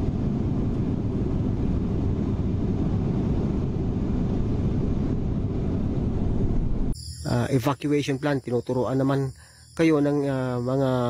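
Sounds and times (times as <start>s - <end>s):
airliner cabin drone: 0.0s - 8.6s.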